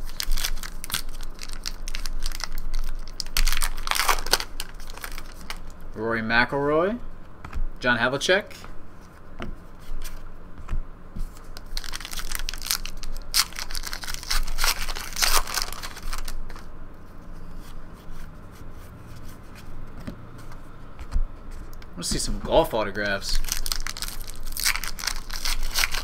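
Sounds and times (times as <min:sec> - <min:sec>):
wrapper tearing and crinkling: 0:00.0 - 0:05.8, 0:11.6 - 0:16.7, 0:23.3 - 0:26.0
cards rustling and tapping: 0:08.5 - 0:16.6.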